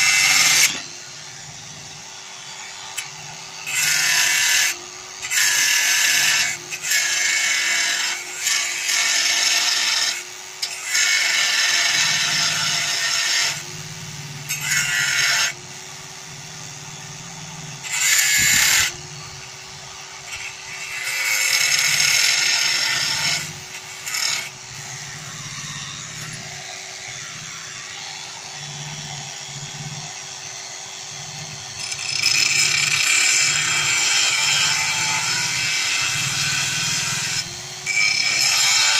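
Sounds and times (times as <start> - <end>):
angle grinder motor humming: 0.0 - 38.9
disc grinding sheet metal: 20.2 - 30.2, 31.3 - 38.9.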